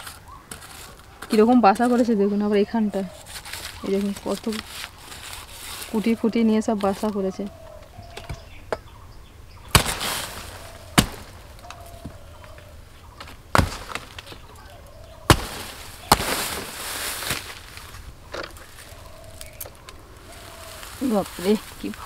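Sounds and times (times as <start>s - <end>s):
short rustle: 3.0s - 7.9s, 15.3s - 22.0s
sickle chopping stalk: 9.7s - 11.9s, 15.3s - 18.6s.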